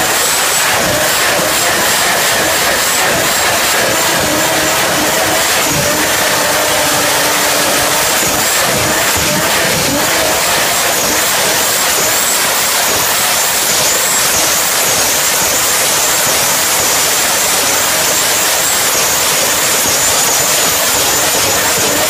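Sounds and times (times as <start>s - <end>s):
tyres spinning: 0.0s - 14.2s
car engine at high revs: 0.0s - 22.0s
high wavering whine: 0.0s - 22.0s.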